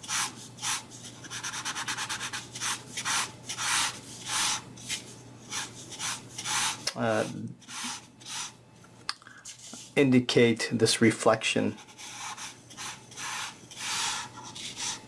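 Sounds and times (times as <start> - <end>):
marker scratching on paper: 0.0 - 8.6, 11.8 - 15.0.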